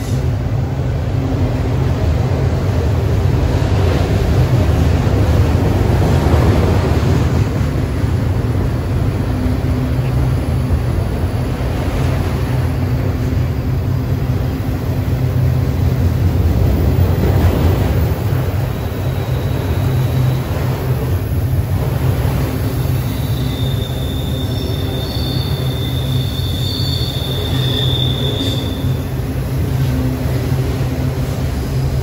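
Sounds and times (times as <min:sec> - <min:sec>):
freight train wheels rumbling on rail: 0:00.0 - 0:32.0
high-pitched wheel squeal: 0:23.0 - 0:29.0.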